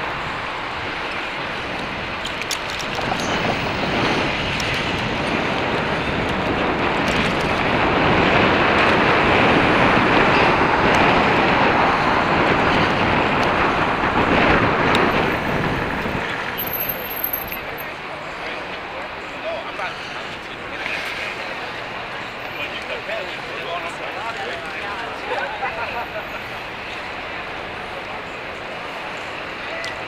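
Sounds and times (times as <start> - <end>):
wind rushing over microphone: 0.0 - 18.0
street traffic: 0.0 - 30.0.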